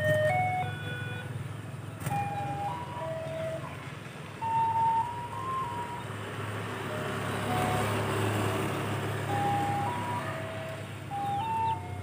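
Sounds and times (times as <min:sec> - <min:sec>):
passing vehicle engine: 0:00.0 - 0:12.0.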